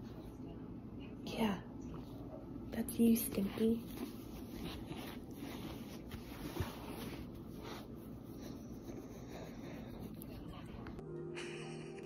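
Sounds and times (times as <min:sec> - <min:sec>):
clothing rustling: 0:03.4 - 0:08.0.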